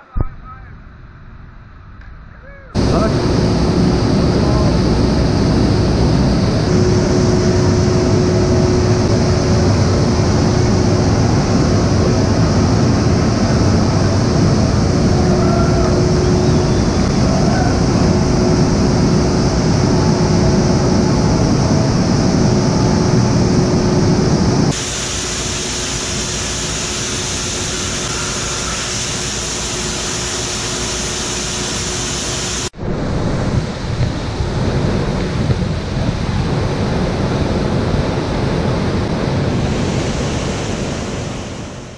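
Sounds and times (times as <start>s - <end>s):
whitewater churning: 2.8s - 26.7s
waterfall rushing: 2.8s - 32.7s.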